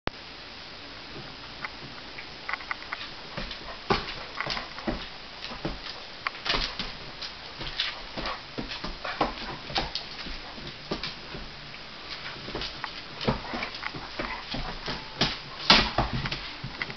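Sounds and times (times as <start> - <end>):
dog claws clicking on wooden floor: 2.5 - 11.5.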